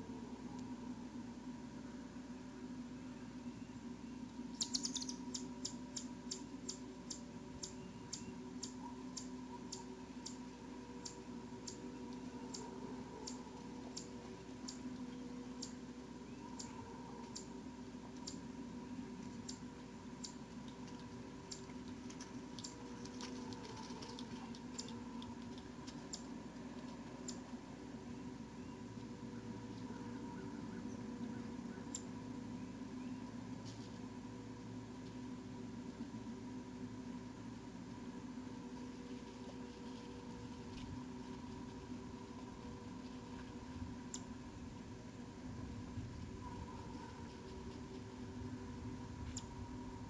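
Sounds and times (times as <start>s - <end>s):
electrical hum: 0.0s - 50.0s
sharp high-pitched ticks: 4.5s - 15.8s, 19.2s - 27.6s, 31.9s - 32.1s.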